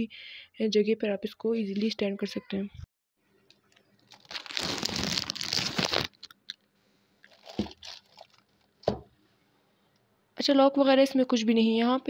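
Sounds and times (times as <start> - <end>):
plastic wrapping crinkling: 3.5 - 6.6, 7.2 - 9.0.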